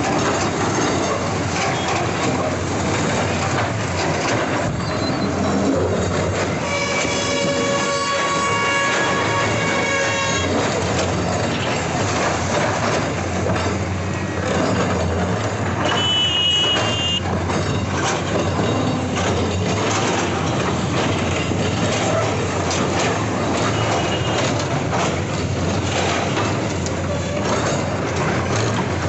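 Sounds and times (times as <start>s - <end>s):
excavator diesel engines running hard: 0.0s - 29.0s
vehicle horn: 6.6s - 10.5s, 15.8s - 17.2s, 23.8s - 24.5s.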